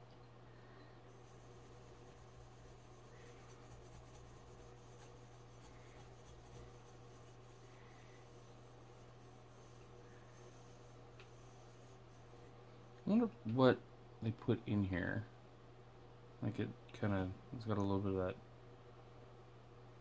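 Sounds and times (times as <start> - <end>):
steady low hum: 0.0 - 20.0
scrubber pad rubbing metal goblet: 1.1 - 12.6.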